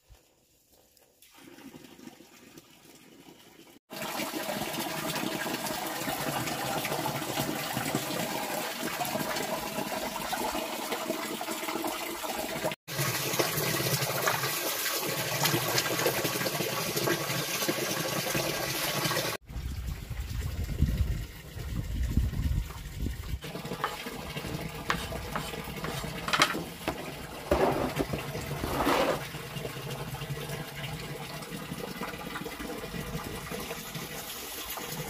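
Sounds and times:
water running: 0:23.4 - 0:35.0.

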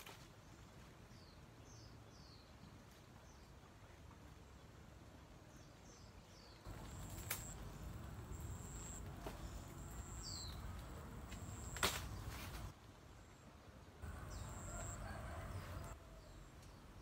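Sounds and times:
birds chirping: 0:05.5 - 0:12.7.

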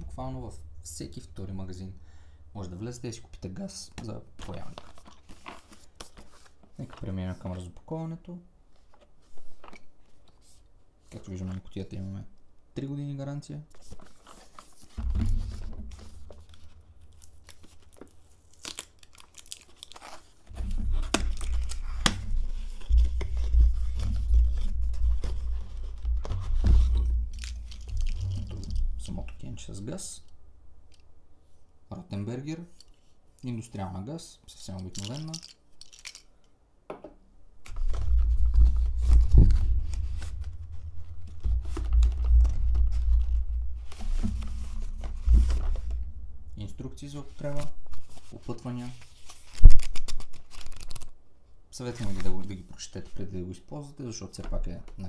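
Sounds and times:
low handling rumble: 0:00.0 - 0:03.4, 0:15.0 - 0:18.4, 0:20.5 - 0:30.9, 0:37.8 - 0:48.0
cardboard flap tearing: 0:13.8 - 0:28.8.

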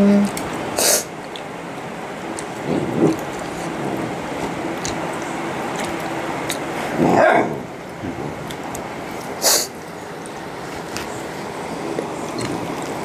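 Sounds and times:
dog barking: 0:07.0 - 0:07.6.

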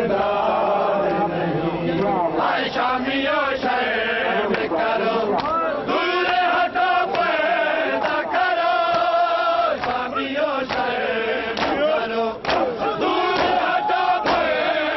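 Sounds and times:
men chanting in unison: 0:00.0 - 0:14.9
hand slaps on chests: 0:05.3 - 0:05.6, 0:07.0 - 0:07.4, 0:08.8 - 0:11.0, 0:11.6 - 0:14.6.

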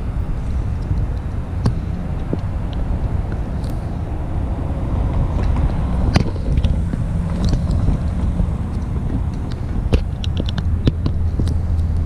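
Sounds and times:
traffic rumbling over rail crossing: 0:00.0 - 0:12.0
high ticks: 0:05.1 - 0:12.0.

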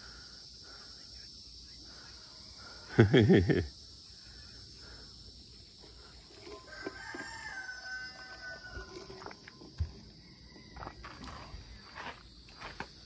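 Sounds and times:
rooster crowing: 0:06.4 - 0:09.5.

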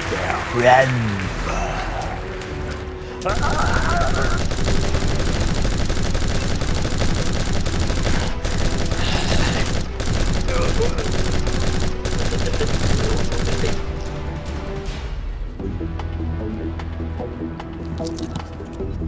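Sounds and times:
machine-gun fire: 0:03.3 - 0:14.3.

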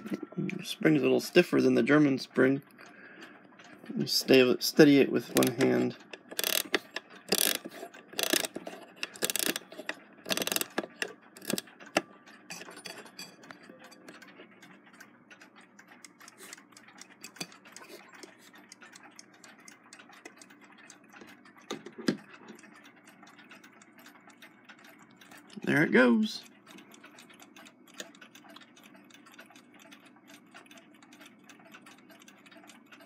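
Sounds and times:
clock ticking faintly: 0:00.0 - 0:33.0
clock winding key clicks: 0:04.3 - 0:25.7, 0:26.4 - 0:33.0.

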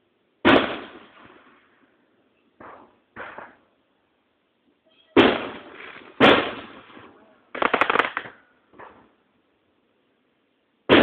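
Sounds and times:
firework crackling: 0:00.0 - 0:02.0, 0:05.1 - 0:08.5
firework bangs: 0:00.4 - 0:01.9, 0:02.6 - 0:03.8, 0:05.1 - 0:09.1.

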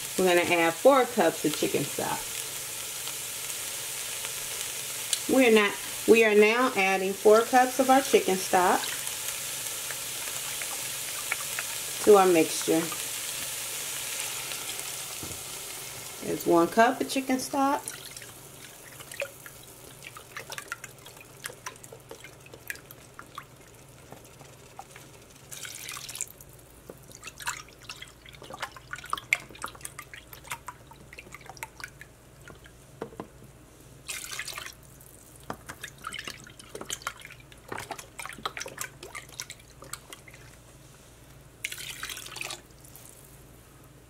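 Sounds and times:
stock pouring into a pot: 0:17.9 - 0:26.4
liquid splashing and dripping: 0:17.9 - 0:32.7, 0:34.1 - 0:40.6, 0:41.6 - 0:43.2.

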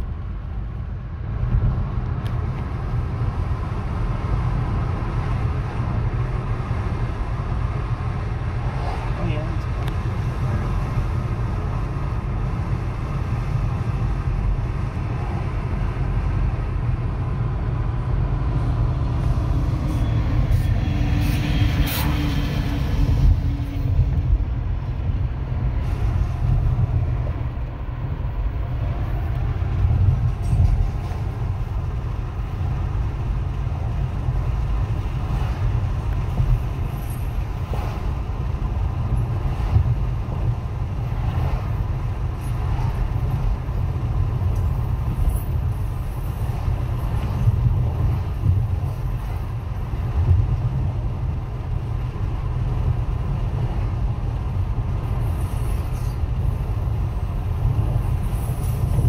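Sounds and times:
car road and engine rumble: 0:00.0 - 0:59.0.

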